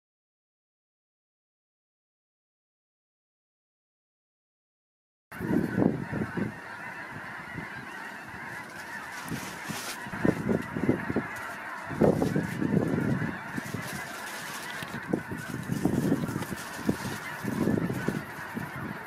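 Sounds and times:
snow geese honking: 5.3s - 19.0s.

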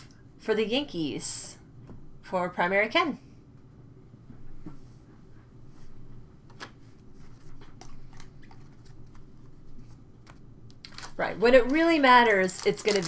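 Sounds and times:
trading cards and plastic sleeve handled: 7.2s - 13.0s.

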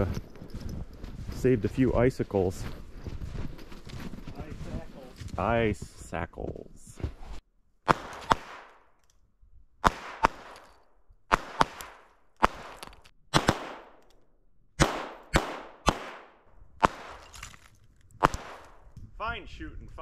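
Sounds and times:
handgun shots echoing: 9.8s - 14.1s, 14.8s - 17.5s, 18.2s - 18.8s.

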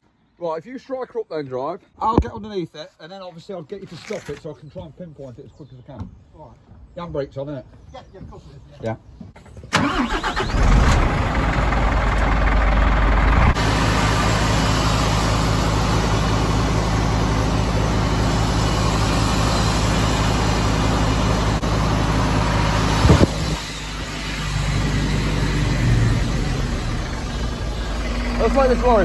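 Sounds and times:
diesel engine starting and idling: 9.4s - 29.0s.

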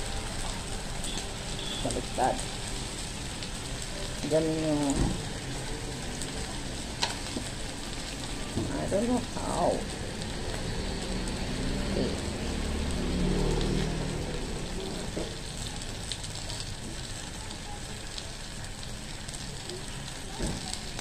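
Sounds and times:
meat sizzling on grill pan: 0.0s - 21.0s.

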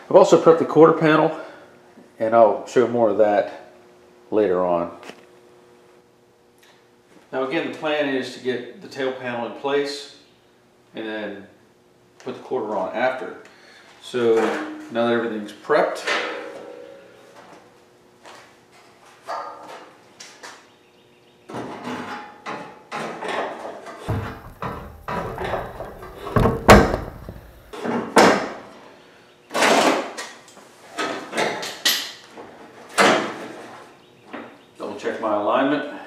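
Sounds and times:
sharp metal knock: 16.0s - 17.4s
sheet metal clunks and scrapes: 24.1s - 27.7s.

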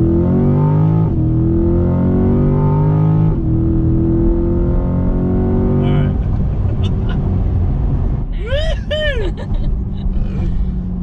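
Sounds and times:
car engine accelerating hard: 0.0s - 8.4s.

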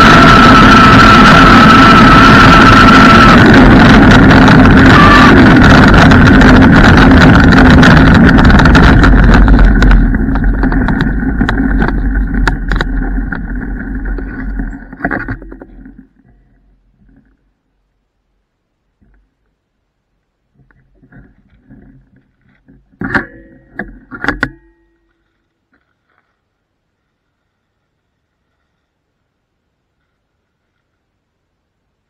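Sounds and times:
thin motor whine: 0.0s - 15.9s
electric scooter riding fast: 0.0s - 16.3s
stones crackling under wheels: 0.0s - 16.4s.

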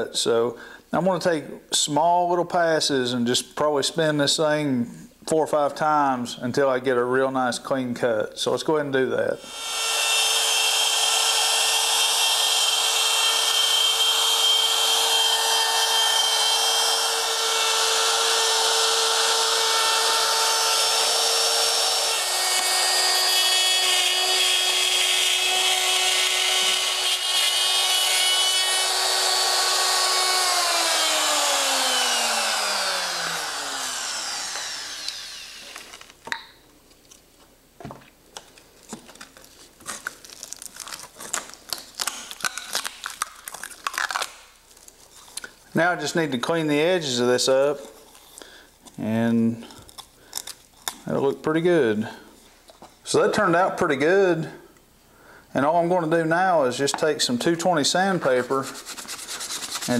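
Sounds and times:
router cutting acrylic: 9.4s - 36.2s, 41.3s - 44.4s.

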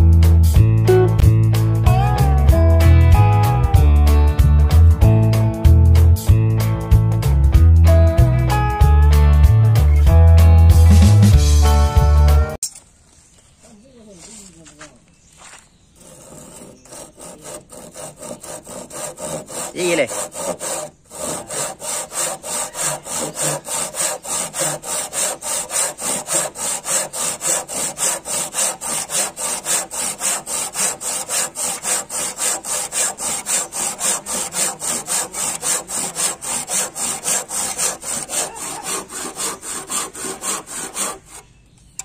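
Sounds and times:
handsaw cutting wood: 16.0s - 41.5s.

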